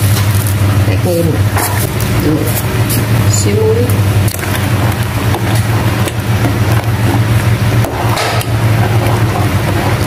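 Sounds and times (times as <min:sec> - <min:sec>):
low mechanical hum: 0:00.0 - 0:10.0
metal ladle stirring in pot: 0:03.9 - 0:10.0.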